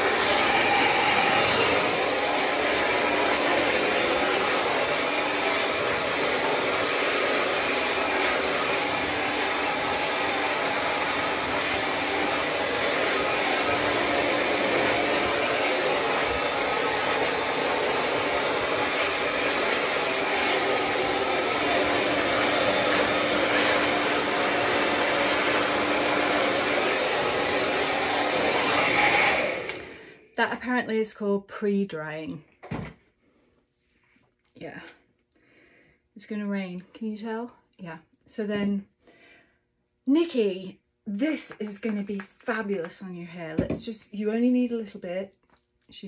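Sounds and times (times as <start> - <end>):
hair dryer running: 0.0 - 30.3, 41.3 - 43.0.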